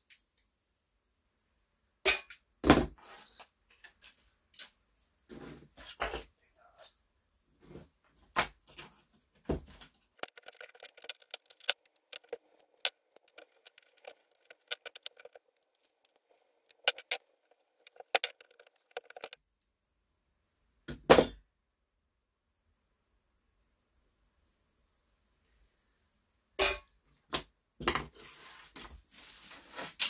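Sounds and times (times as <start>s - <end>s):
hand tools clicking on plastic: 10.2s - 19.4s.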